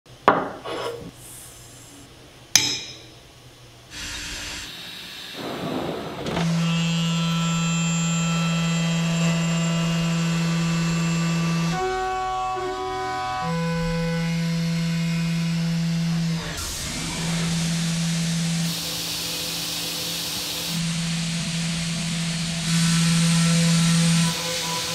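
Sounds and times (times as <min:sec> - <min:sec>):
milling machine whine cutting metal: 0:06.3 - 0:24.9.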